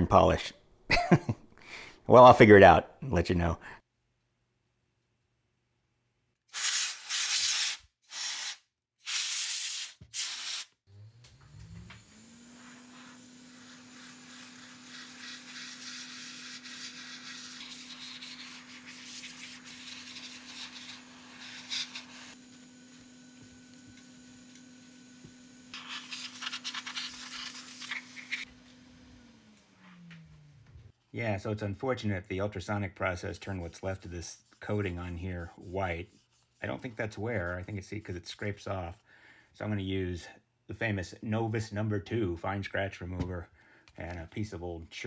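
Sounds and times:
compressed air blasts: 6.5 - 10.8
rotary tool spinning: 25.7 - 28.5.

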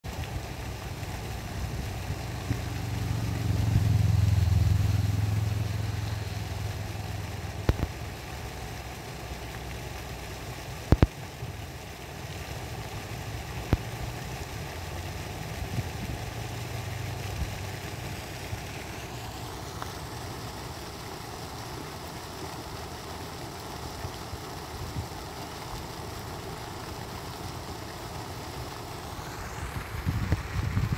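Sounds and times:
vehicle engine idling: 0.5 - 7.8.

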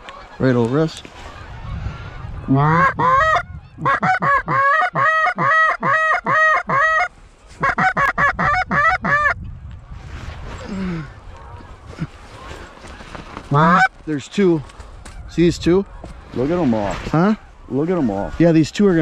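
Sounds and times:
goose honking: 2.5 - 9.4, 13.5 - 14.0.

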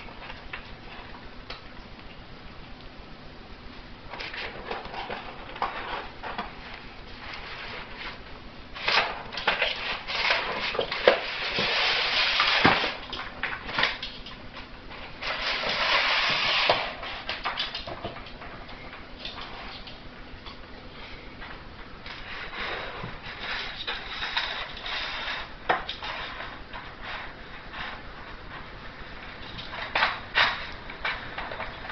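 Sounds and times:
dog tearing cardboard: 8.8 - 14.0, 15.2 - 17.7, 22.3 - 27.3.

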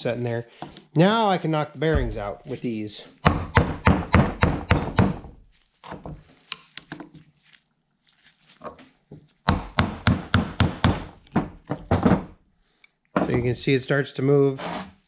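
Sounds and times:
hammer striking metal punch: 3.3 - 5.2.

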